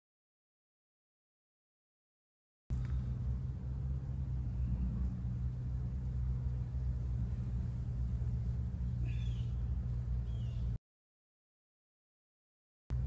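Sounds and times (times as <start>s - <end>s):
honeybees humming: 2.7s - 10.8s.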